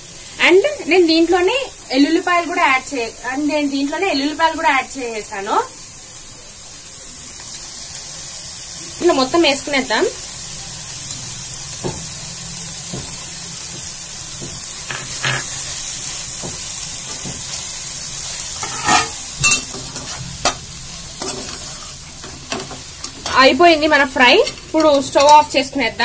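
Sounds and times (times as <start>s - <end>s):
food sizzling in pan: 0.0s - 26.0s
spatula scraping pan: 14.8s - 15.8s, 17.1s - 25.5s.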